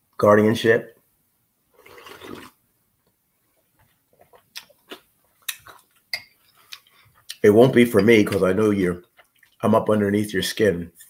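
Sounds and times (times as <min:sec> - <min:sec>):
person slurping from a bowl: 0:01.8 - 0:02.6
wet mouth clicks and smacks: 0:04.2 - 0:07.4.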